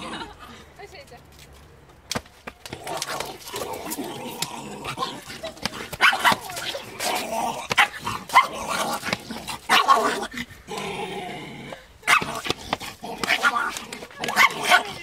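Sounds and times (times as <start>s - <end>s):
puppy barking: 6.0s - 6.5s, 9.7s - 10.2s.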